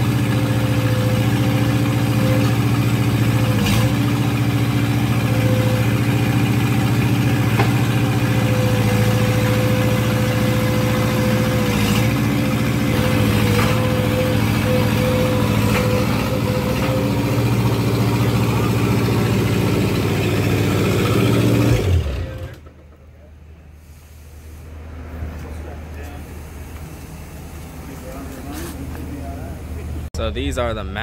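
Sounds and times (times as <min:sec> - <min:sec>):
loader engine running: 0:00.0 - 0:31.0.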